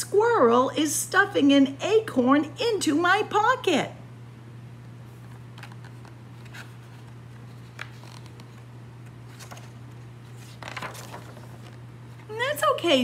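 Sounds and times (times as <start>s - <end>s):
steady low hum: 0.0s - 13.0s
page turning: 5.1s - 12.3s
paper rustling: 5.1s - 12.4s.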